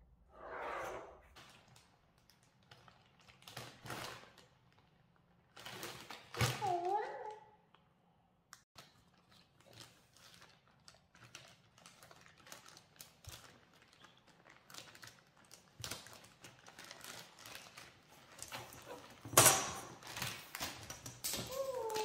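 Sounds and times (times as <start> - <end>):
plastic bag crinkling: 1.4 - 7.3, 8.8 - 19.3.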